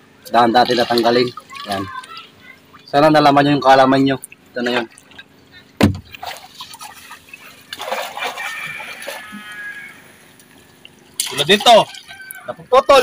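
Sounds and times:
water sloshing and splashing: 0.2s - 13.0s
loud splash: 5.8s - 9.7s
chicken calling: 7.4s - 10.8s, 11.8s - 13.0s.

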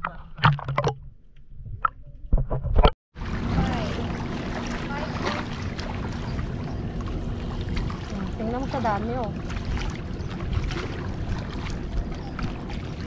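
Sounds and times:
sea water at rocky shore: 3.2s - 13.0s
wind on microphone: 3.2s - 13.0s.

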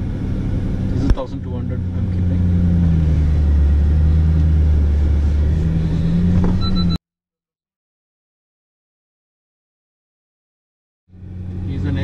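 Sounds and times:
engine droning at low speed: 0.0s - 7.0s, 11.1s - 12.0s.

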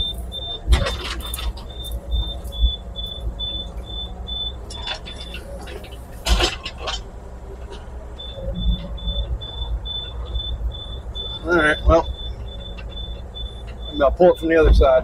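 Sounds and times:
excavator engine humming: 0.0s - 15.0s
high pulsing tone: 8.2s - 14.4s.

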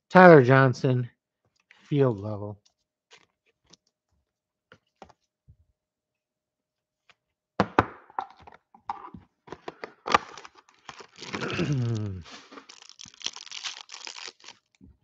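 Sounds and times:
cardboard box tearing open: 10.1s - 14.6s.

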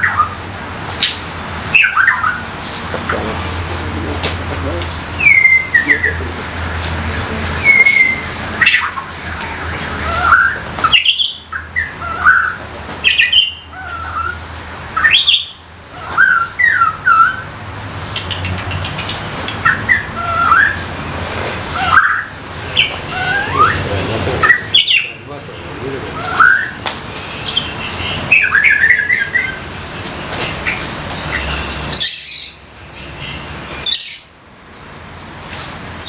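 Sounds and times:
bird calling with whistles: 0.0s - 0.4s, 1.0s - 2.5s, 5.2s - 6.2s, 7.5s - 14.4s, 15.0s - 17.5s, 19.6s - 20.9s, 21.7s - 25.2s, 26.1s - 29.6s, 30.4s - 34.4s.

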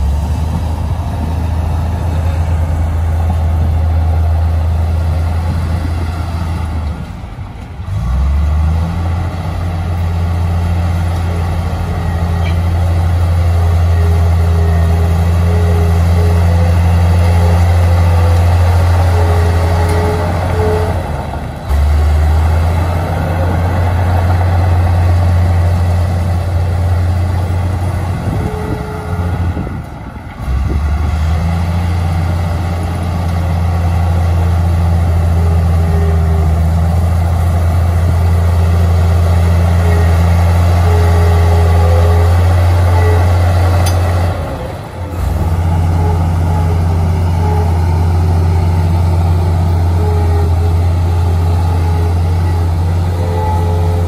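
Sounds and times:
bulldozer diesel engine running: 0.0s - 54.0s.

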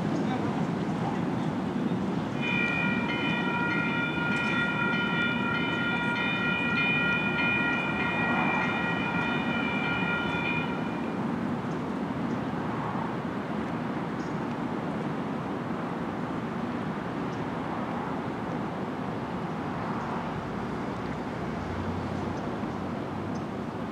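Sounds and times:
passing train rumble: 0.0s - 13.6s, 17.7s - 23.9s
railroad crossing bells ringing: 2.4s - 11.4s.

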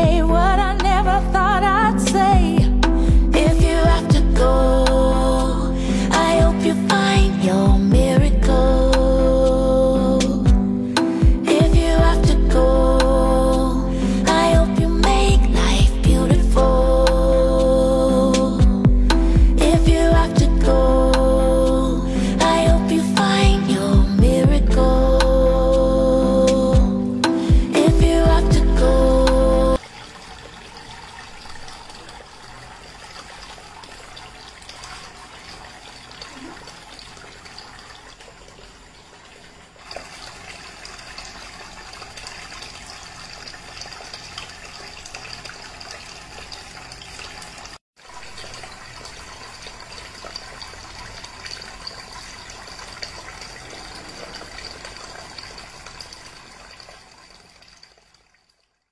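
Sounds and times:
fountain water trickling: 28.5s - 58.9s.

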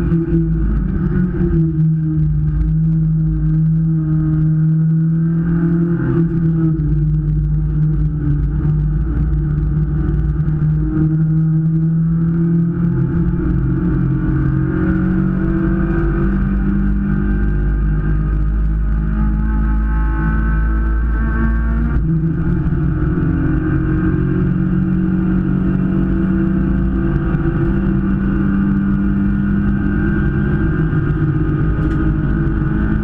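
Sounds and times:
race car engine at high revs: 0.0s - 33.0s
steady low rumble: 0.0s - 33.0s.

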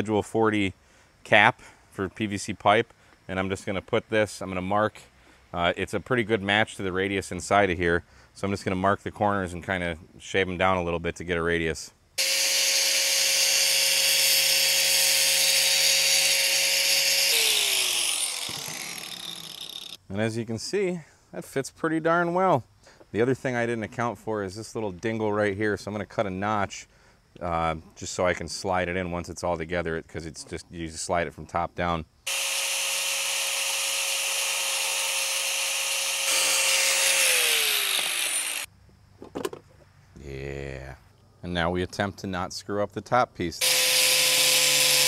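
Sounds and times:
angle grinder whining: 12.2s - 20.0s, 32.3s - 38.7s, 43.6s - 45.0s
grinder cutting acrylic sheet: 12.2s - 20.0s, 32.3s - 38.7s, 43.6s - 45.0s.

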